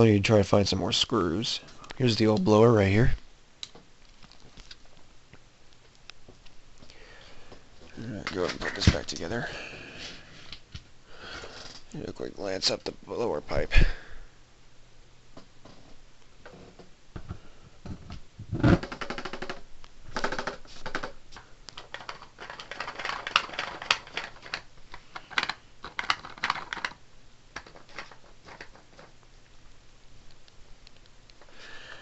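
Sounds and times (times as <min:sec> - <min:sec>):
plastic parts clicking and rattling: 0:03.6 - 0:05.0, 0:17.9 - 0:29.2.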